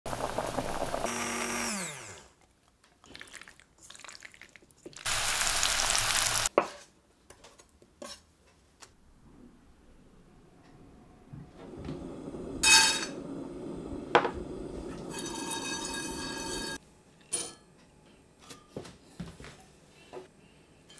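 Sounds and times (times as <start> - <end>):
blender whirring: 0.1 - 2.4
loud hiss: 5.1 - 6.5.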